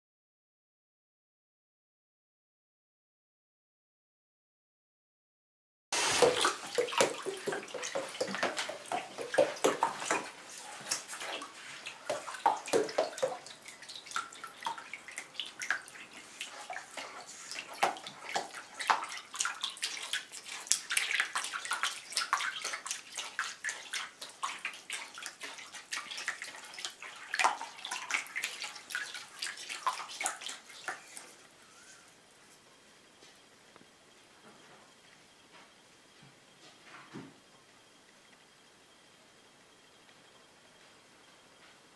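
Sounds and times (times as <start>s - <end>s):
bath water splashing: 6.0s - 31.5s.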